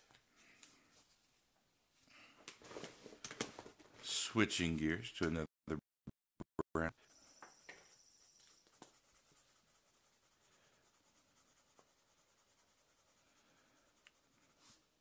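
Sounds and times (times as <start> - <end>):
marker scratching on paper: 7.2 - 14.9.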